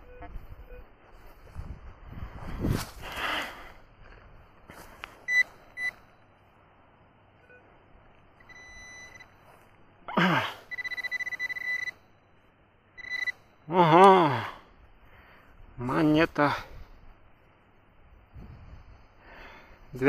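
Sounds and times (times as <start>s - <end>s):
metal detector beeping: 0.0s - 0.9s, 5.2s - 6.0s, 8.4s - 9.4s, 10.7s - 12.1s, 13.0s - 13.5s.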